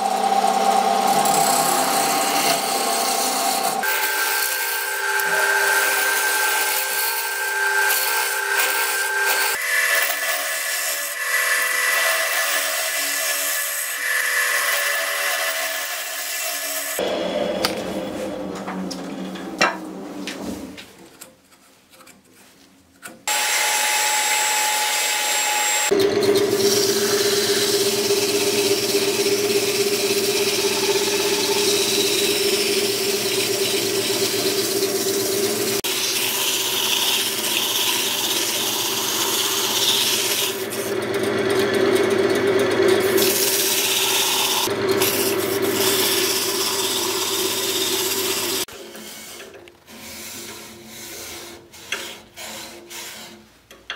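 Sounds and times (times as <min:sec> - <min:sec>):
lathe humming: 0:00.0 - 0:10.3, 0:23.3 - 0:48.7
tool scraping wood on lathe: 0:00.0 - 0:11.3, 0:25.8 - 0:53.9.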